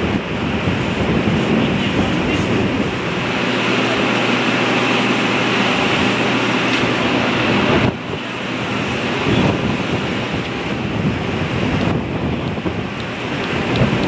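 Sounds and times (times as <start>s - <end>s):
ship machinery humming: 0.0s - 14.0s
wind blowing across microphone: 0.0s - 14.0s.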